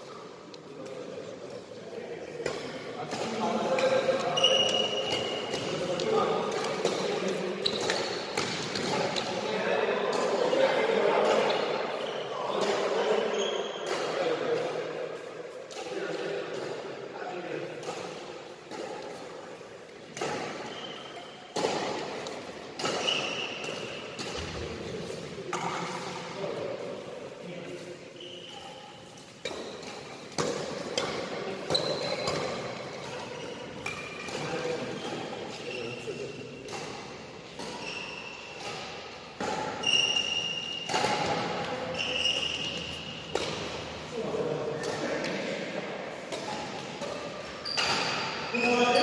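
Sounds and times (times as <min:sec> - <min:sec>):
racket hitting shuttlecock: 0:02.4 - 0:09.4, 0:13.8 - 0:15.0, 0:17.6 - 0:27.1, 0:28.6 - 0:35.6, 0:36.6 - 0:48.9
shoes squeaking on court floor: 0:02.4 - 0:49.0
racket striking shuttlecock: 0:21.5 - 0:24.7, 0:29.2 - 0:35.2, 0:38.4 - 0:43.9, 0:46.1 - 0:48.4.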